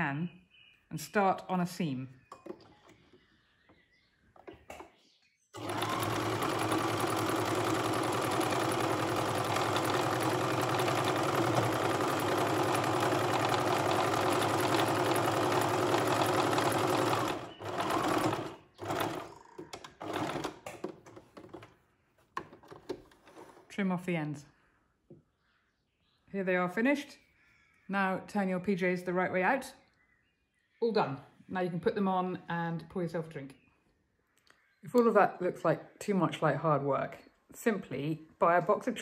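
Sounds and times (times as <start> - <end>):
sewing machine stitching: 5.6 - 21.7.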